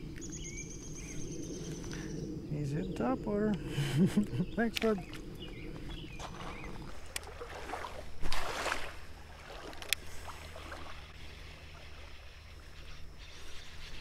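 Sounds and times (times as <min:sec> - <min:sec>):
flowing water: 0:04.6 - 0:14.0
splash on water: 0:06.2 - 0:11.0.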